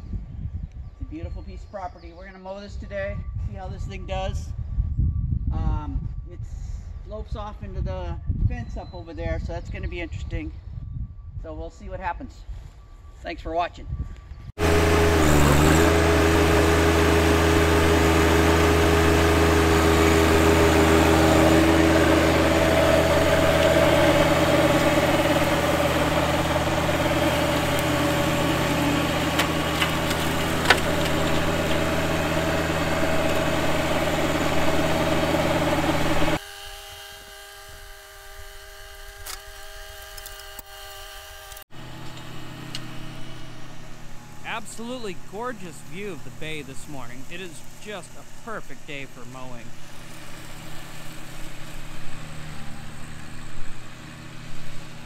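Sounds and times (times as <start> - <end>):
tractor diesel engine running: 14.6 - 36.4, 41.7 - 55.0
flail mower cutting grass: 14.6 - 55.0.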